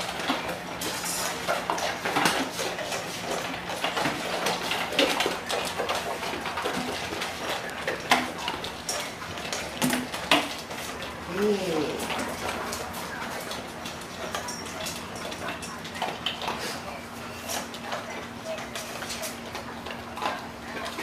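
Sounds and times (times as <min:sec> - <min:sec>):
dog bowls clinking: 0:11.8 - 0:21.0.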